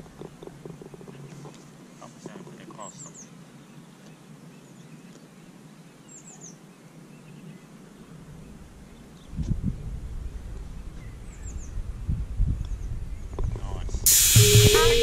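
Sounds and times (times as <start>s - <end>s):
songbird chirping: 0.0s - 9.4s
outdoor background noise: 0.0s - 15.0s.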